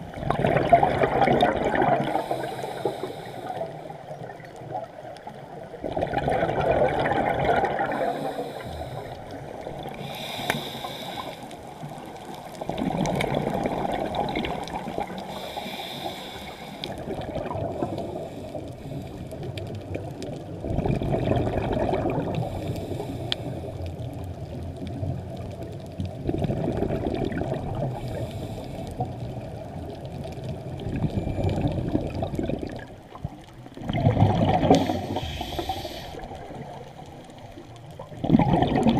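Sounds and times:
exhaled bubbles underwater: 0.0s - 38.9s
regulator inhalation hiss: 2.1s - 3.8s, 8.0s - 9.2s, 10.0s - 11.8s, 15.2s - 17.0s, 22.5s - 23.8s, 28.0s - 28.9s, 34.7s - 36.3s.

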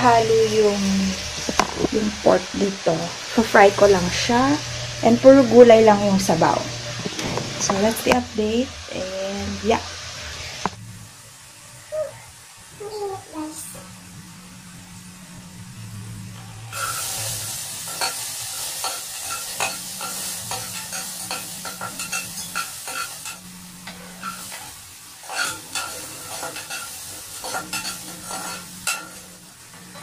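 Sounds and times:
vegetables sizzling in a pot: 0.0s - 30.0s
utensil scraping against pot: 17.9s - 23.4s, 24.0s - 29.3s.

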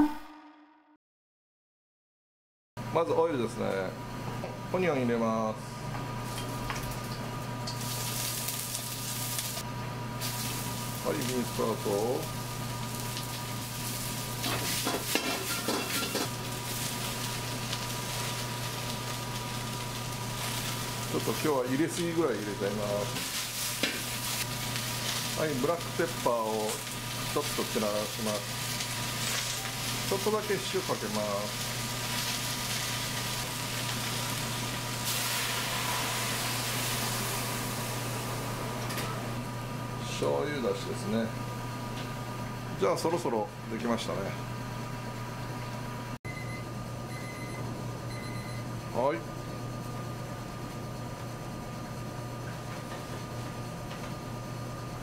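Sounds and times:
vegetables sizzling in hot oil: 7.6s - 9.6s, 10.2s - 38.4s
broth hissing in a wok: 7.8s - 9.6s, 10.2s - 38.8s.

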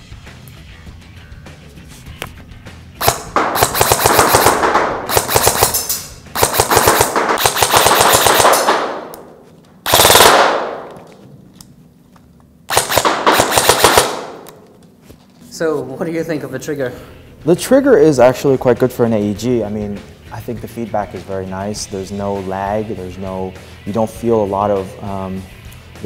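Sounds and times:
airsoft rifle firing: 3.0s - 11.1s, 12.7s - 14.7s.

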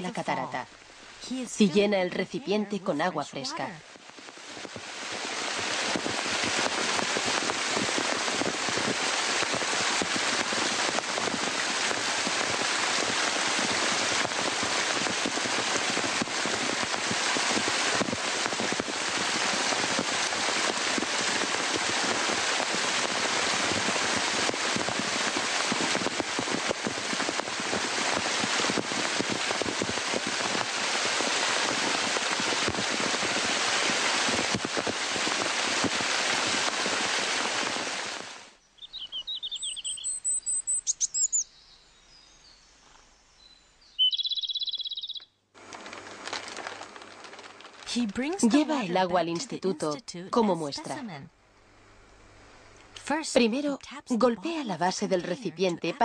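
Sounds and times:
waterfall rushing and splashing: 4.2s - 38.5s.

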